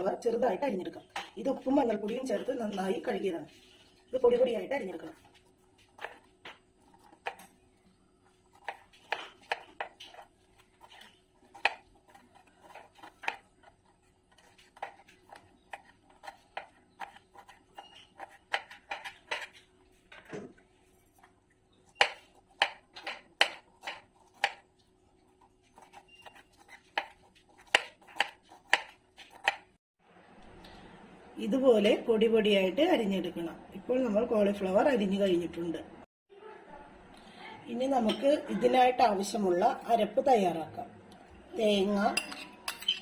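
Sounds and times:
knife chopping on board: 8.5s - 13.5s, 14.3s - 19.6s, 22.0s - 24.7s, 25.8s - 29.7s.

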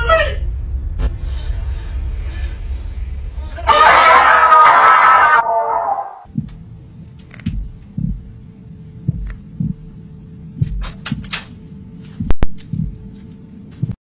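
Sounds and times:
dull low thumps: 0.0s - 3.8s, 6.3s - 14.0s
steady hum: 0.0s - 5.5s, 6.1s - 14.0s.

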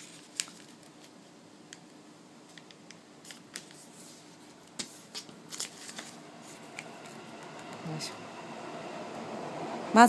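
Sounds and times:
paper crackling while folded: 0.0s - 1.2s, 3.2s - 6.8s.

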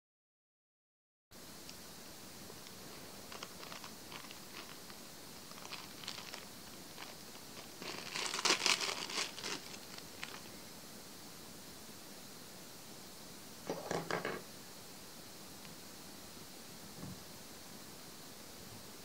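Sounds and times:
plastic bag crinkling: 3.2s - 10.5s.

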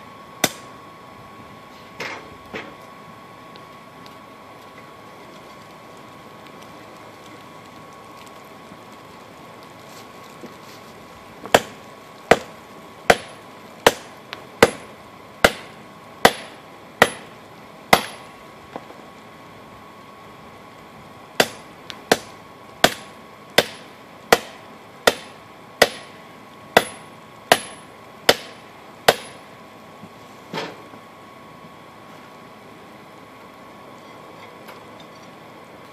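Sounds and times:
hammer blows on hot steel: 13.1s - 17.3s, 21.4s - 26.2s.

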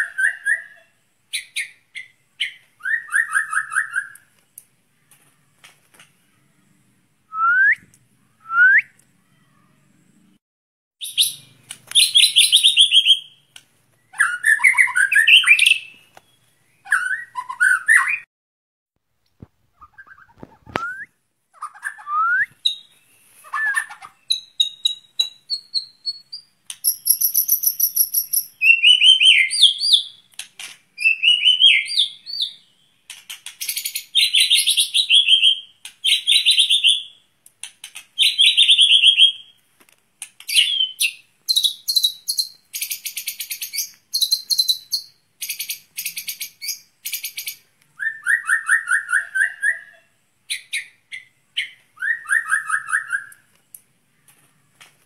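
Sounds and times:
songbird singing whistles and trills: 0.0s - 4.3s, 7.3s - 9.0s, 11.0s - 18.3s, 19.8s - 30.3s, 31.0s - 33.0s, 33.6s - 37.2s, 38.2s - 39.6s, 40.5s - 53.5s.

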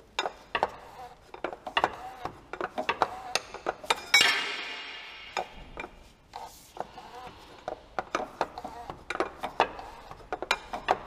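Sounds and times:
hand tools clinking on metal: 3.9s - 5.9s
ringing metallic clang: 4.1s - 5.8s.

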